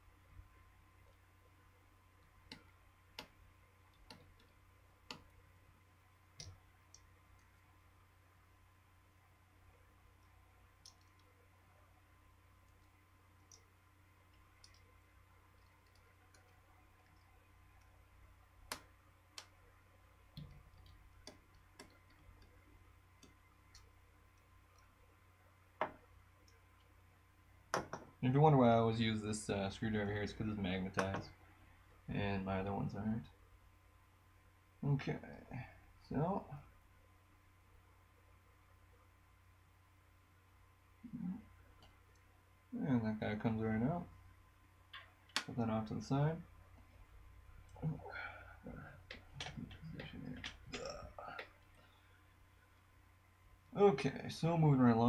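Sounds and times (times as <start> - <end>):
small clicks and taps of parts: 2.2 - 5.4, 10.2 - 11.4, 14.3 - 14.9, 15.5 - 18.0, 18.6 - 19.6, 20.3 - 22.6, 44.9 - 45.5, 49.0 - 51.9.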